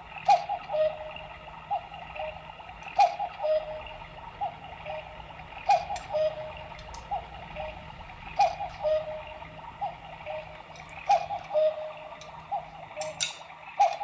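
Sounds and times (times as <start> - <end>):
cuckoo clock calling: 0.0 - 14.0
sharp clock click: 5.7 - 6.2, 8.4 - 8.8, 13.0 - 14.0.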